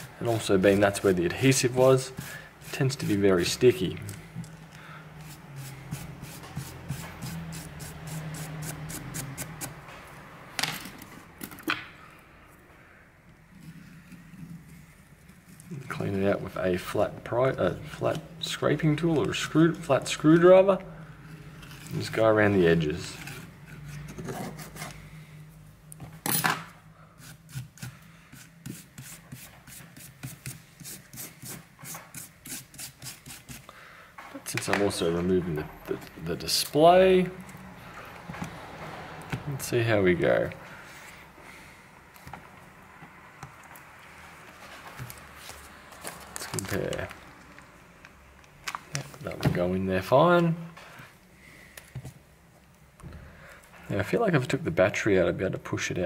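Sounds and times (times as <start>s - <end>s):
small brush scrubbing: 0.0s - 3.9s, 5.2s - 9.7s, 27.2s - 33.7s
screwdriver scraping tablet frame: 22.8s - 25.0s.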